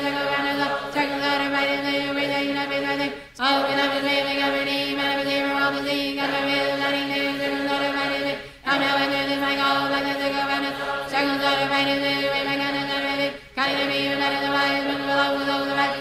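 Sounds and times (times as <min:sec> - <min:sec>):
voices chanting in unison: 0:00.0 - 0:16.0.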